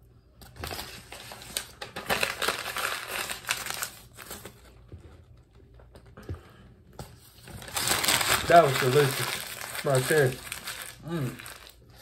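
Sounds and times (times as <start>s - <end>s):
wrapper crinkling: 0.6s - 4.8s, 7.4s - 12.0s.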